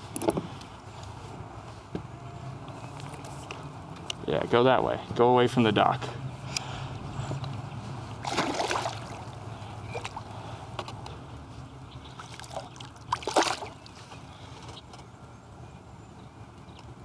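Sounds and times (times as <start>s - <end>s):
water splashing and sloshing: 8.2s - 10.4s, 12.1s - 14.2s.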